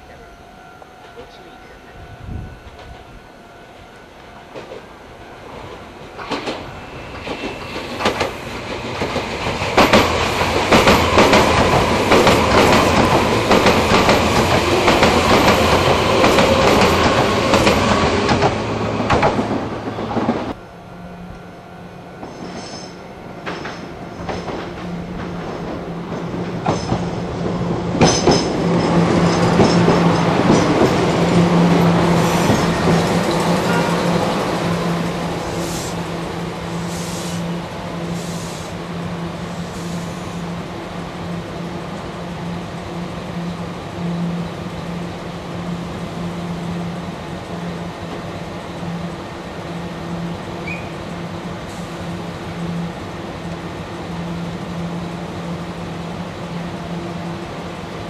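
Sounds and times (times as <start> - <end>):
train running with low hum: 0.0 - 58.0
wheels clacking over rail joints: 5.6 - 20.6, 22.2 - 36.5.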